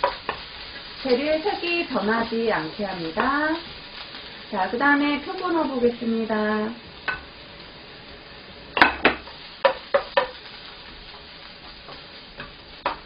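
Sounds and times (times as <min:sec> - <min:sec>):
vegetables sizzling in a frying pan: 0:00.0 - 0:13.0
wooden spatula knocking on pan: 0:08.8 - 0:10.4, 0:11.9 - 0:13.0.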